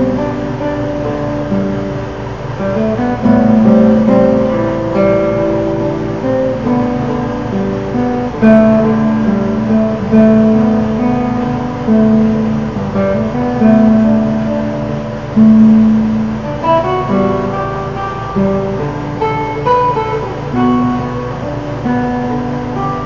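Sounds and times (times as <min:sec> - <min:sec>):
fingerpicked classical guitar: 0:00.0 - 0:23.0.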